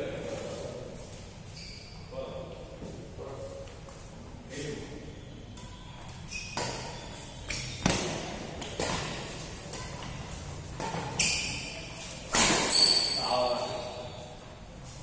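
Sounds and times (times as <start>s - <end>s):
badminton racket hitting shuttlecock: 6.4s - 13.0s.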